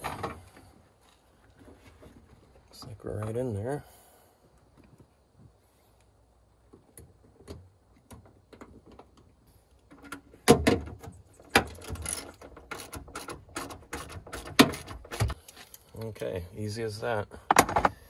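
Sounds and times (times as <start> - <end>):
socket wrench ratcheting: 11.8 - 14.9.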